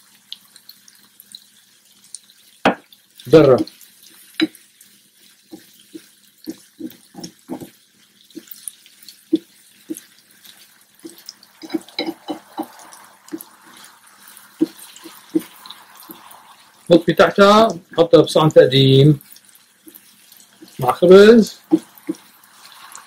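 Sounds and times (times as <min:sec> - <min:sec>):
food sizzling: 0:00.0 - 0:23.0
spatula scraping frying pan: 0:03.4 - 0:17.7, 0:19.2 - 0:23.0.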